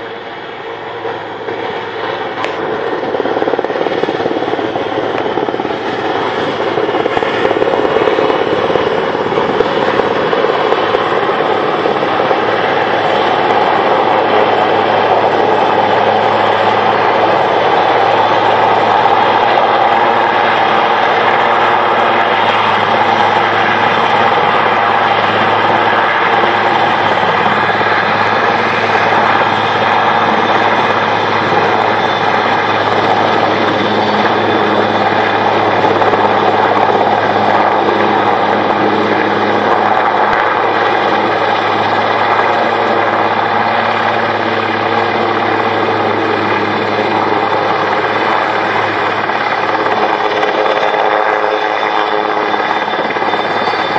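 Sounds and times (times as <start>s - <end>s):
helicopter rotor beat: 0.0s - 53.9s
high turbine whine: 0.0s - 53.9s.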